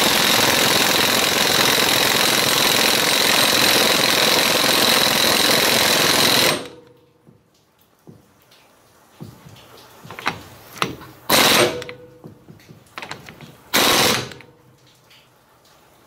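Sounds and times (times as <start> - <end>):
impact wrench hammering: 0.0 - 6.9, 10.1 - 14.5.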